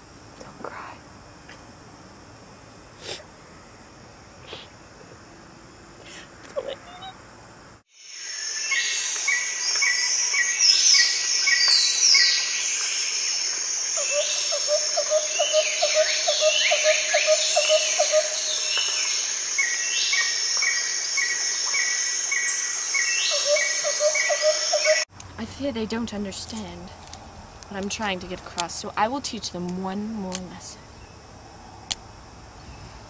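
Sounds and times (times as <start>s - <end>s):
birds singing and chirping: 8.6s - 13.4s, 14.0s - 25.1s
rapid low bird trill: 13.9s - 25.0s.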